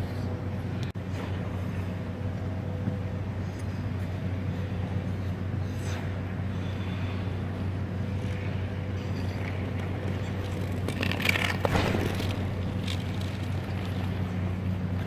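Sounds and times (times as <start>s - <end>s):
low mechanical hum: 0.0s - 15.0s
skate blades scraping ice: 8.2s - 14.6s.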